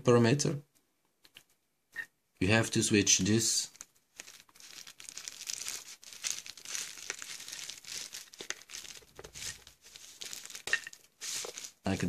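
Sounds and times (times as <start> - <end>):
bubble wrap crinkling: 3.6 - 12.0.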